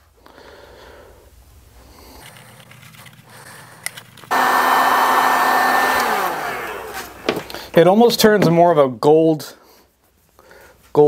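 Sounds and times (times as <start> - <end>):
heat gun fan blowing: 3.8 - 7.8.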